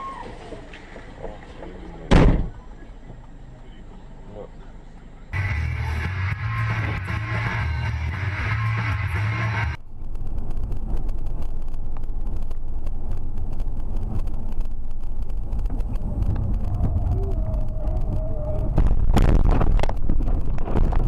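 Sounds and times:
car engine and tyres droning: 0.0s - 21.0s
loud rough noise of car leaving road: 5.4s - 21.0s.

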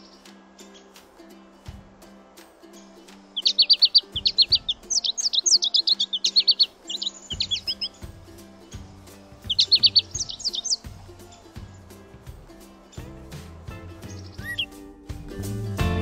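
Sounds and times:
sparrow chirping: 0.0s - 0.9s, 3.4s - 14.8s
quiet background music: 0.0s - 16.0s.

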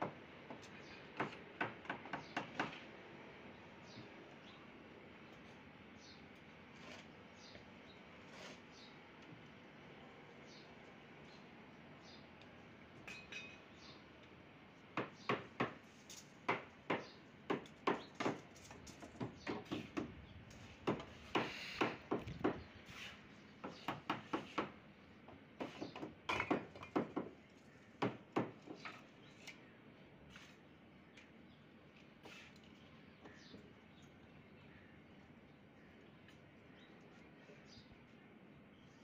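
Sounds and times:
hammer knocking on wood: 15.0s - 15.8s, 16.5s - 18.5s, 19.1s - 20.1s, 20.8s - 22.7s, 23.6s - 24.8s, 25.6s - 27.4s, 28.0s - 28.8s.

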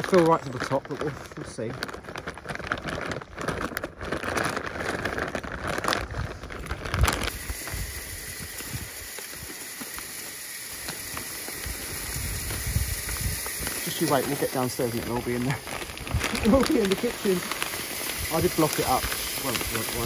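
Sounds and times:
granules pouring with a hiss: 0.0s - 20.0s
plastic sack crinkling: 0.0s - 20.0s.

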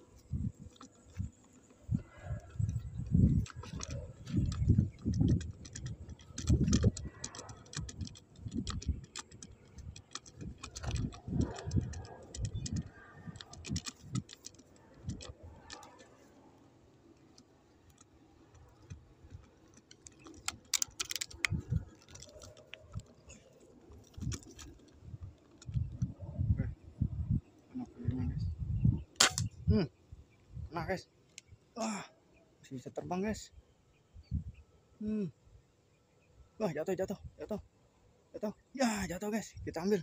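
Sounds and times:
light clicks: 0.2s - 16.2s.

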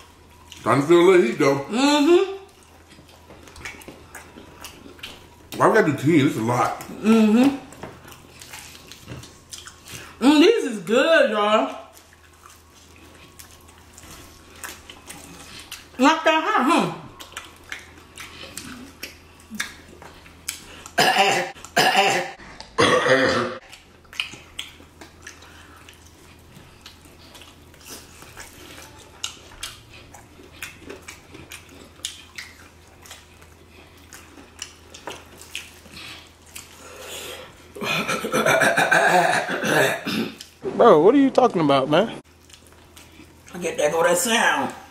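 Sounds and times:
chewing and lip-smacking: 0.0s - 1.6s, 2.3s - 10.2s, 10.8s - 16.0s, 16.9s - 21.8s, 23.6s - 37.9s, 40.4s - 40.6s, 42.2s - 43.7s.

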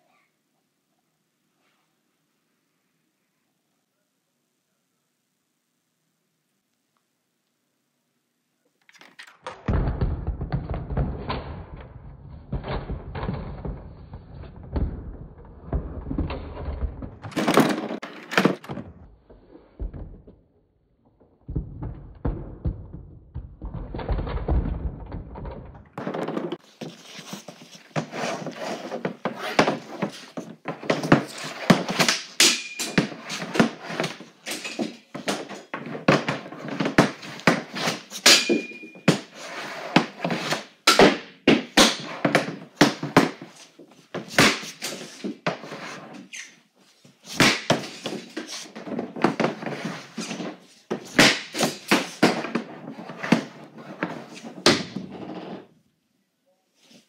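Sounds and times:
hockey stick slapping tiles and pucks: 8.8s - 20.4s, 21.2s - 55.7s
pucks thudding into net and board: 8.9s - 20.4s, 21.4s - 55.6s.

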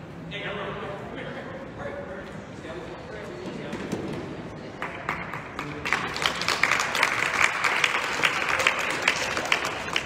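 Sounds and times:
spectators applauding: 4.8s - 10.0s.

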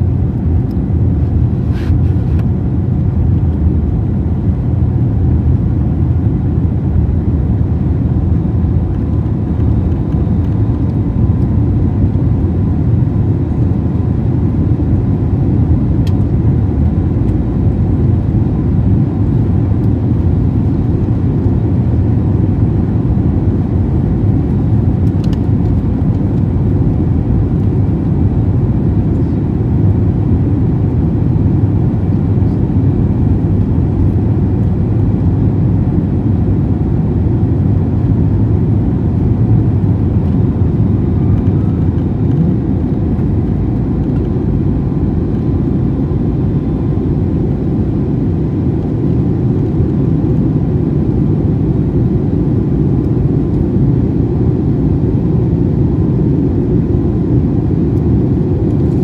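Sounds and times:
aircraft cabin engine roar: 0.0s - 59.0s
faint steady whine: 0.0s - 59.0s.

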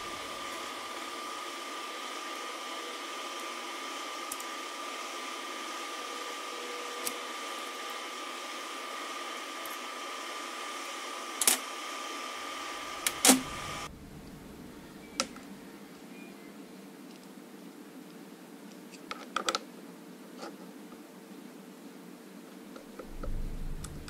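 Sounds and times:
background hum: 0.0s - 4.5s, 12.4s - 17.8s, 22.7s - 24.0s
thin constant whine: 0.0s - 24.0s.

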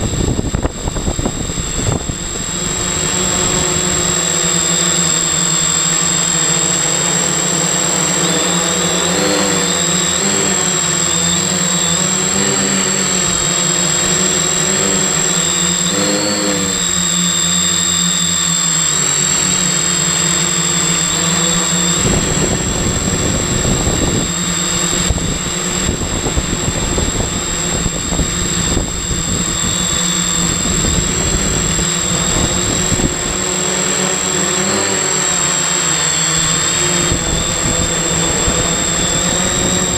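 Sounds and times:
wind on microphone: 0.0s - 4.8s, 21.8s - 33.7s, 36.3s - 39.9s
drone motors buzzing: 0.0s - 39.9s
high-pitched whine: 0.0s - 39.9s.

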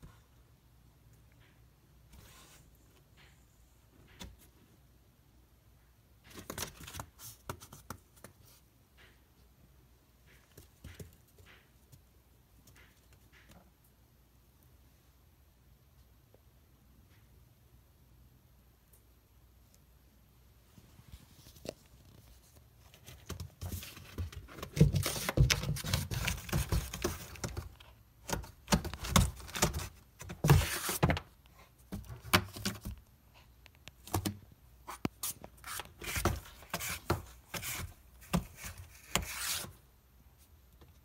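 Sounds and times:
cat scratching cardboard box: 23.0s - 33.0s, 34.1s - 39.8s.

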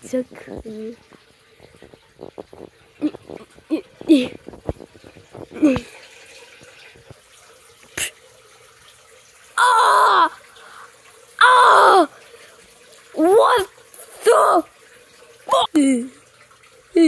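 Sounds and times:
child squealing: 9.6s - 10.4s, 11.4s - 12.1s.

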